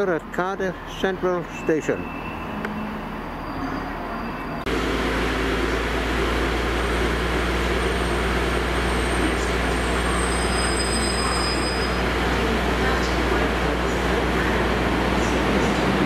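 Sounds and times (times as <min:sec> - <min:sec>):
rail noise: 0:00.0 - 0:16.0
train diesel engine running: 0:00.0 - 0:16.0
faint high squeal: 0:08.9 - 0:12.0.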